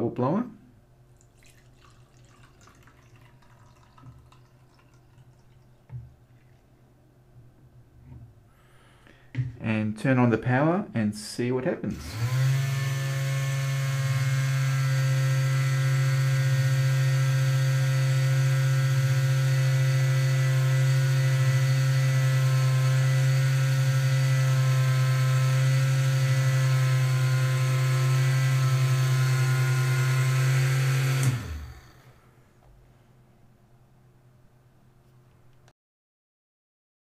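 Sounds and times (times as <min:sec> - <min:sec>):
small electric motors buzzing: 0:11.9 - 0:32.0.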